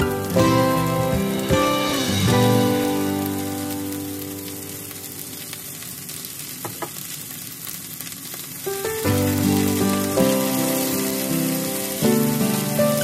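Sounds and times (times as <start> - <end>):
guitar background music: 0.0 - 5.8, 8.7 - 13.0
green beans sizzling in pan: 0.0 - 13.0.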